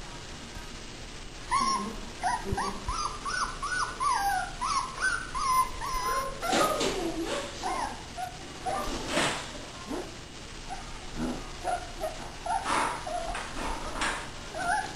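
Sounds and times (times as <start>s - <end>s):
low rough puppy cry: 1.5s - 8.9s, 10.7s - 13.5s, 14.5s - 14.9s
high puppy whines: 1.5s - 9.1s, 11.6s - 13.6s, 14.5s - 14.9s
puppies whimpering and yipping: 1.5s - 9.2s, 11.6s - 14.9s.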